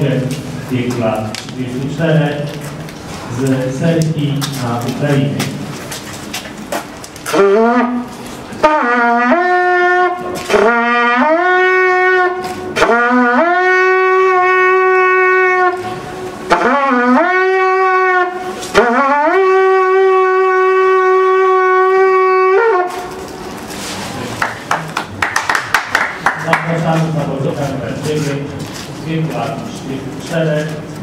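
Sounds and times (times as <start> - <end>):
horn blown in a call: 7.3 - 23.4.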